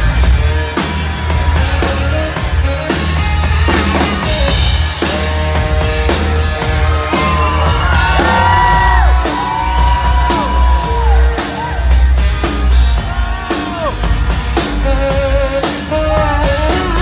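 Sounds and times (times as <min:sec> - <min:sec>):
rock band drums and bass: 0:00.0 - 0:17.0
saxophone solo: 0:00.0 - 0:17.0.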